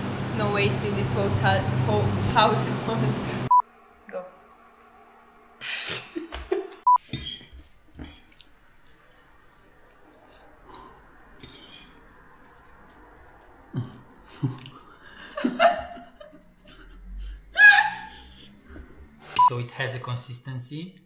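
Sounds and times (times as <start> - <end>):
chewing: 7.6 - 15.1.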